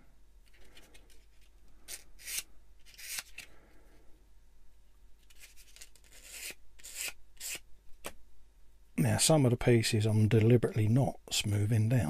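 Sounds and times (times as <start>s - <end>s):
sanding stick rubbing plastic: 6.0s - 7.6s.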